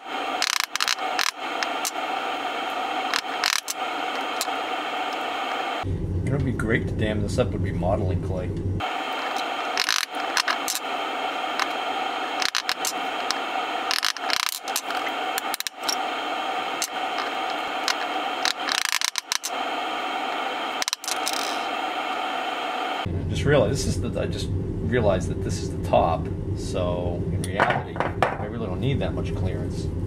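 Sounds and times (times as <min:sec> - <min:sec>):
chisel scraping epoxy: 0:00.0 - 0:05.5, 0:09.1 - 0:22.2
steady hum: 0:00.0 - 0:30.0.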